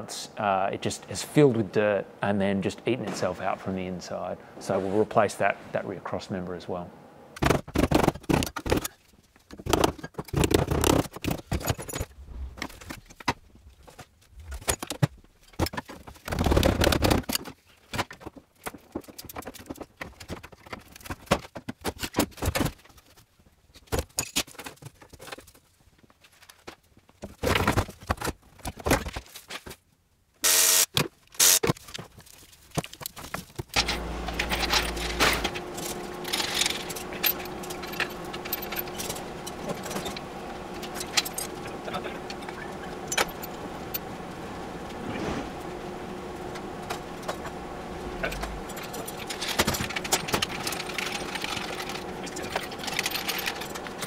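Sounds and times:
workshop hum: 0.0s - 8.9s, 9.8s - 14.8s, 30.4s - 31.7s, 33.6s - 54.0s.

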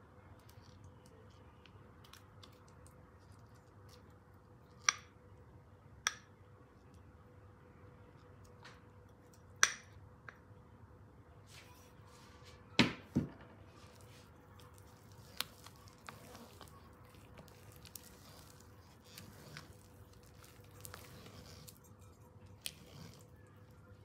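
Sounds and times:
batter squishing: 0.0s - 6.4s, 13.6s - 24.0s.

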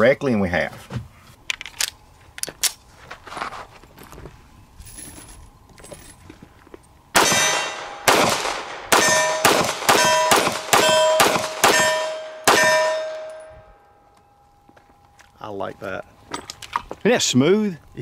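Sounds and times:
steel target ringing: 7.2s - 8.3s, 8.9s - 14.6s
pistol shots: 7.2s - 13.5s.

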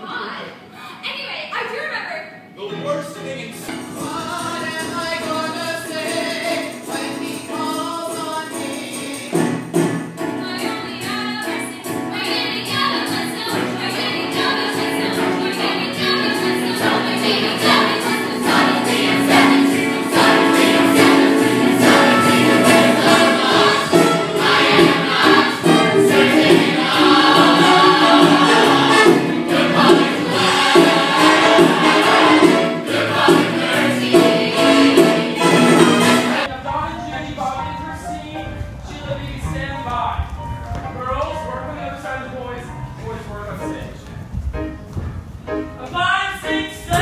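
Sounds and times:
ensemble singing with band: 12.5s - 36.5s.

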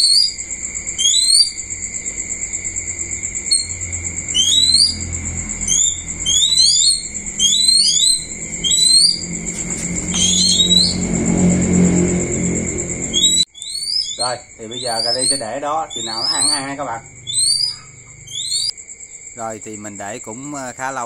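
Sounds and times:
bird chirping: 0.0s - 2.2s, 3.2s - 11.5s, 12.6s - 18.7s
shrill pulsing trill: 0.0s - 18.7s
low hum: 1.6s - 13.5s.

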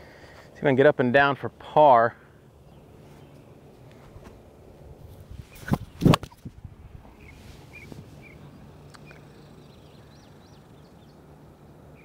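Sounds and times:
faint bird chirps: 7.2s - 11.2s.

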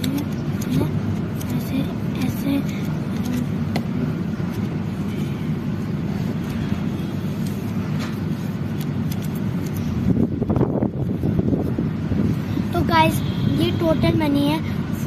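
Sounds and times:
banknotes flicked by hand: 0.0s - 5.2s, 6.3s - 10.7s.

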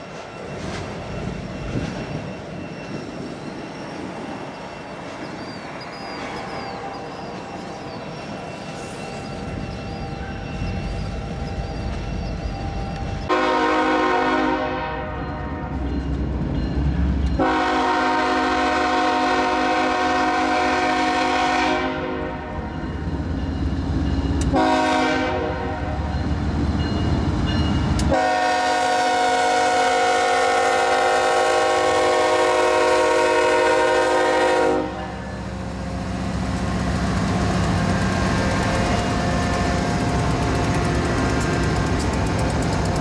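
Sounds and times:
locomotive air horn blasts: 13.3s - 15.6s, 17.4s - 22.6s, 24.5s - 26.0s, 28.1s - 35.4s.

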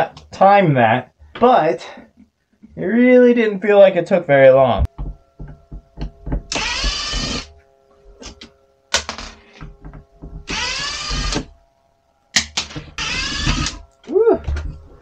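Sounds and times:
cordless drill bursts: 6.5s - 7.5s, 10.5s - 11.5s, 13.0s - 13.8s.

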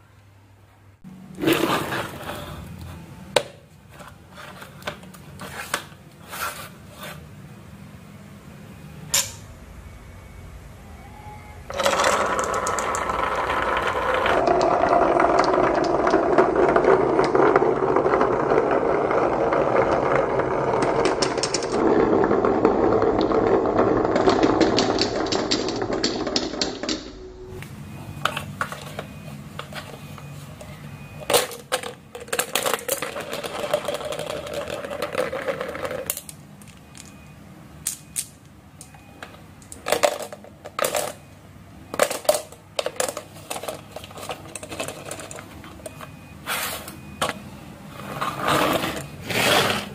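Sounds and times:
balls rolling on wooden track: 1.3s - 2.6s, 11.7s - 27.2s, 28.2s - 37.3s, 38.9s - 41.3s, 41.9s - 46.2s, 46.9s - 49.9s
balls rattling down wooden track: 11.7s - 27.1s, 31.2s - 37.2s, 39.6s - 41.2s, 41.9s - 46.0s.

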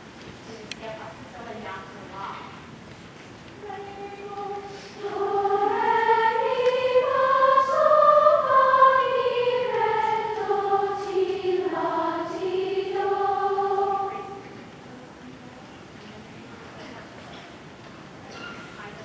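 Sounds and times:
choir singing long held notes: 3.6s - 14.6s.

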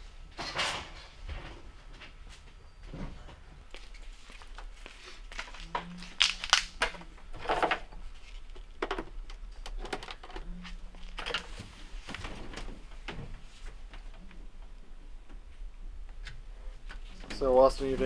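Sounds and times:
clicks and rustles of handling wiring: 3.7s - 18.0s.

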